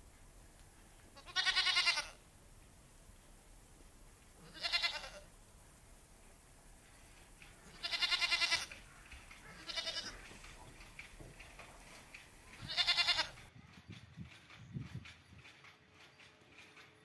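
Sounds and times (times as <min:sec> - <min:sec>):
goat bleating: 0:01.2 - 0:02.2, 0:04.4 - 0:05.3, 0:07.6 - 0:10.9, 0:12.5 - 0:13.5.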